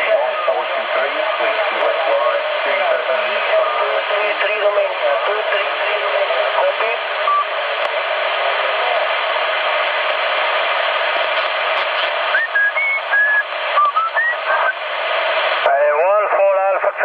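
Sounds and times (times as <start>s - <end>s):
radio static hiss: 0.0s - 17.0s
short radio whistles: 12.3s - 14.8s.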